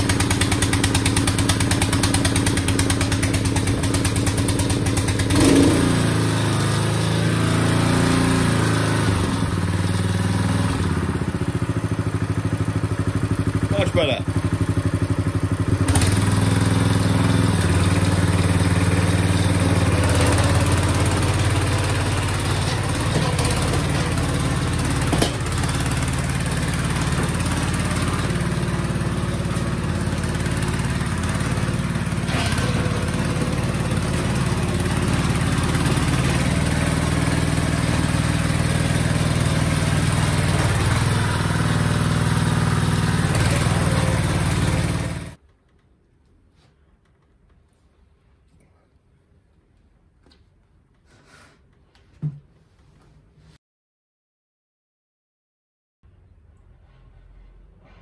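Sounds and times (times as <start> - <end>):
petrol engine running steadily: 19.4 - 37.8, 42.4 - 45.3.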